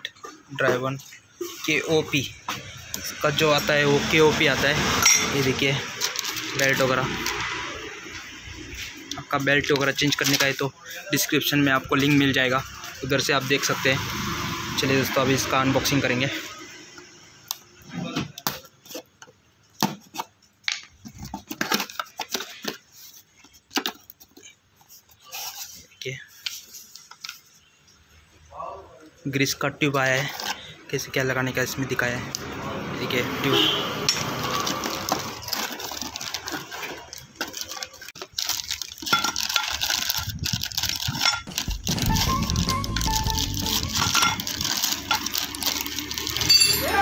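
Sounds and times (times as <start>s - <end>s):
plastic wrapping crinkling: 5.4s - 7.7s, 34.2s - 47.0s.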